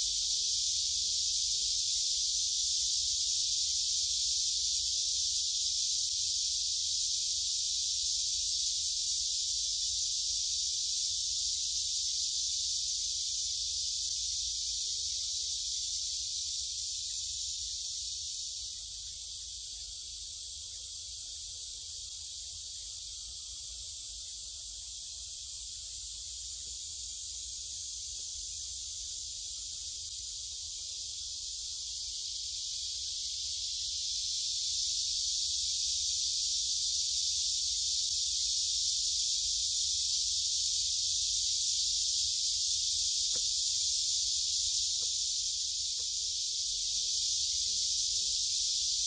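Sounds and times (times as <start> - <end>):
cicadas singing: 0.0 - 49.0.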